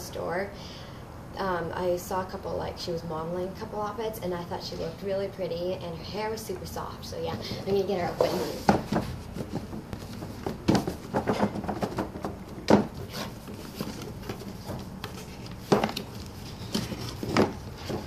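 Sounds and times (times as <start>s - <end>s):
cardboard box rustling and scraping: 7.6s - 18.0s
box knocking on wooden floor: 8.2s - 13.0s.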